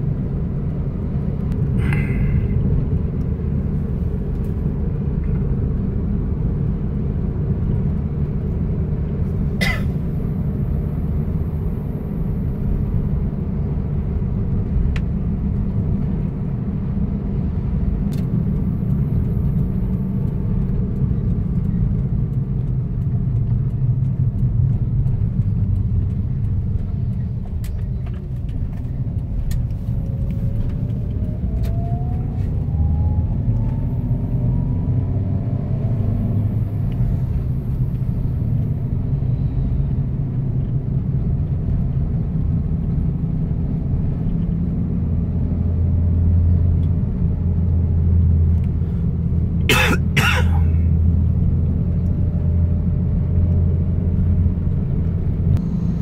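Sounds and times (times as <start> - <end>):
car engine and road noise: 0.0 - 56.0
faint rising whine: 29.7 - 36.7.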